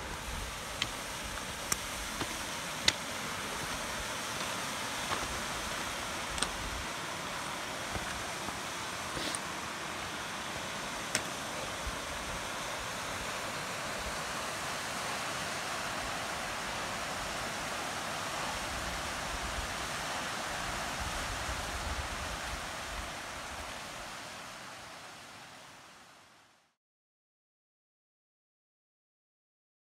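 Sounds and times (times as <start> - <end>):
rushing outdoor noise: 0.0 - 26.3.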